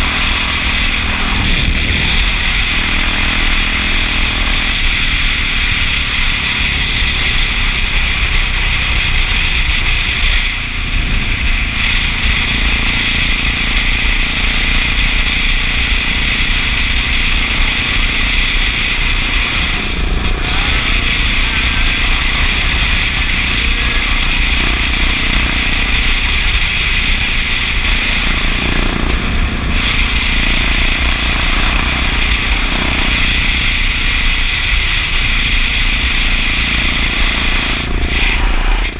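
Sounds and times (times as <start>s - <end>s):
wind buffeting microphone: 0.0s - 14.0s
motorcycle engine running: 0.0s - 38.9s.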